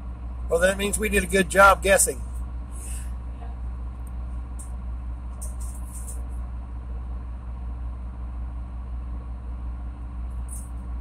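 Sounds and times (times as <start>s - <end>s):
boat diesel engine running: 0.0s - 11.0s.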